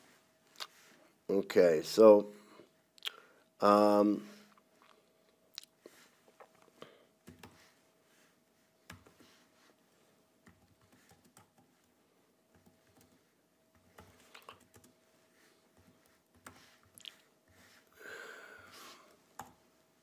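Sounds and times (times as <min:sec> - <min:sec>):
faint steady hum: 0:00.0 - 0:20.0
laptop keyboard typing: 0:07.2 - 0:07.6, 0:10.4 - 0:11.9, 0:12.5 - 0:15.0.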